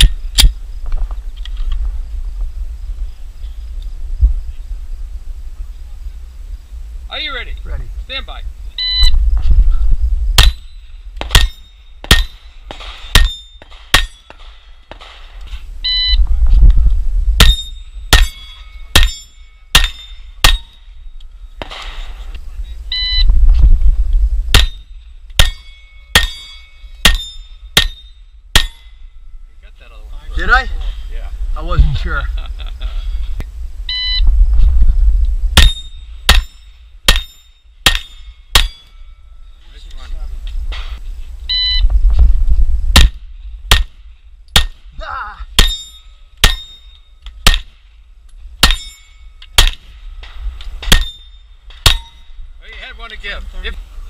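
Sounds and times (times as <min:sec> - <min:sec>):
low rumble on microphone: 0:00.0 - 0:11.3, 0:15.2 - 0:19.0, 0:21.0 - 0:25.2, 0:29.1 - 0:36.3, 0:39.2 - 0:45.4
shot timer beep: 0:08.8 - 0:09.2, 0:15.8 - 0:16.2, 0:22.9 - 0:23.3, 0:33.9 - 0:34.2, 0:41.5 - 0:41.8
pistol shots: 0:10.4 - 0:15.4, 0:43.0 - 0:44.8, 0:47.4 - 0:47.8, 0:49.6 - 0:52.1
steel target plates ringing: 0:10.4 - 0:15.4, 0:17.4 - 0:22.2, 0:24.5 - 0:29.6, 0:35.6 - 0:39.7, 0:45.5 - 0:47.9, 0:48.6 - 0:52.7.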